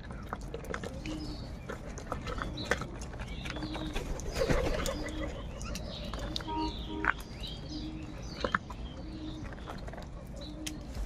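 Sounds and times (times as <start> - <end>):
high bird chirps: 2.6 - 9.8.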